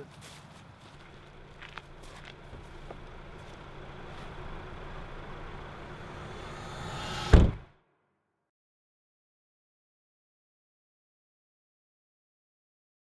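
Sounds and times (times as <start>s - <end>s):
low steady rumble: 0.8s - 7.7s
loud ringing bang: 3.7s - 7.7s.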